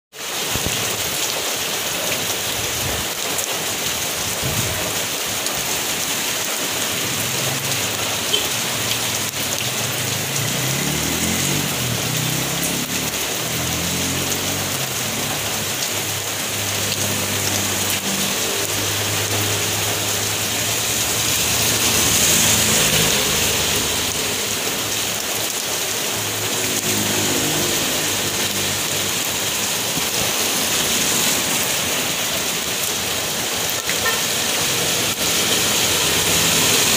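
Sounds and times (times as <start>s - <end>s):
heavy rain on wet road: 0.1s - 36.9s.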